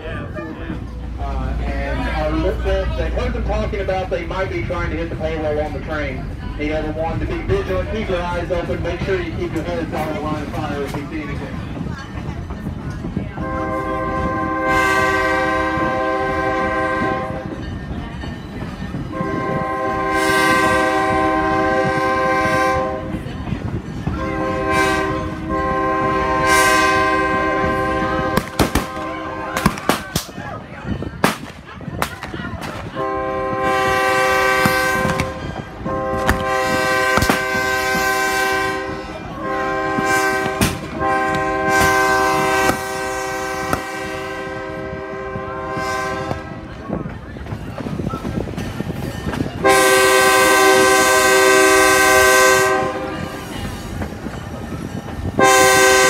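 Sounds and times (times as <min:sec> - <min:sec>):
locomotive air horn: 0:13.4 - 0:17.6, 0:19.1 - 0:23.3, 0:24.2 - 0:29.9, 0:32.9 - 0:46.7, 0:49.6 - 0:53.5, 0:55.3 - 0:56.0.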